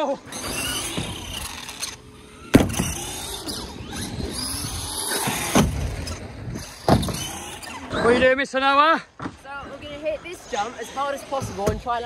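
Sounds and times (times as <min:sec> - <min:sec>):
electric motors whining: 0:00.0 - 0:08.2
toy truck landing thump: 0:02.4 - 0:03.5, 0:05.2 - 0:06.0, 0:06.7 - 0:07.6.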